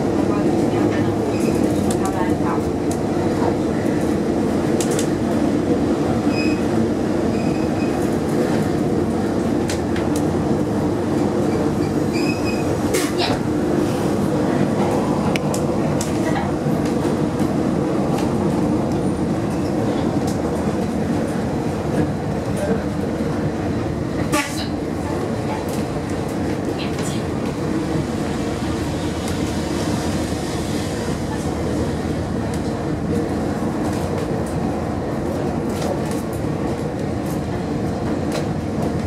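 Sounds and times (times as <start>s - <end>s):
tram wheels rumbling: 0.0s - 39.0s.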